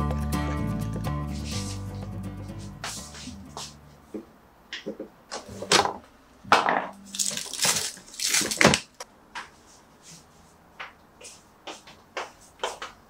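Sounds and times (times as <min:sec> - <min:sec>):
plastic bin liner crinkling: 0:07.1 - 0:09.0.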